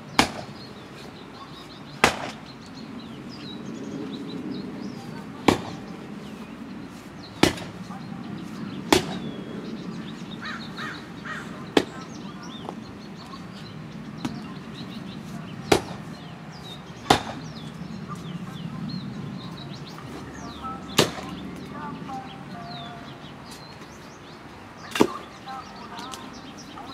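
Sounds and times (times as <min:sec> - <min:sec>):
birds chirping faintly: 0:00.0 - 0:26.9
digging tool striking hard soil: 0:00.2 - 0:00.6, 0:02.0 - 0:02.4, 0:05.5 - 0:05.8, 0:07.4 - 0:07.8, 0:08.9 - 0:09.3, 0:15.7 - 0:16.0, 0:17.1 - 0:17.5.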